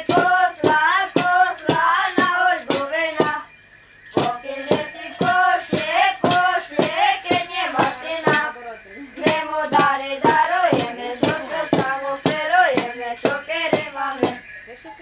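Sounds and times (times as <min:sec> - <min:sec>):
boys singing a carol: 0:00.0 - 0:14.8
wooden staffs knocking on floor: 0:04.2 - 0:08.5, 0:09.3 - 0:14.4.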